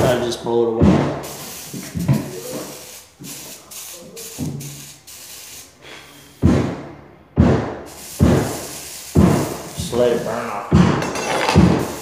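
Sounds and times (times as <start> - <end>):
man blowing puffs of breath: 1.2 - 2.0, 2.6 - 6.5, 7.9 - 9.8.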